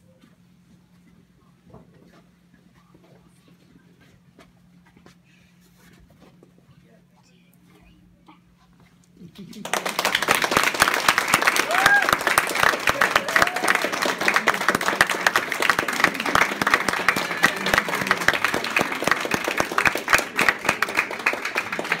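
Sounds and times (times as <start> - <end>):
crowd applauding: 9.6 - 22.0.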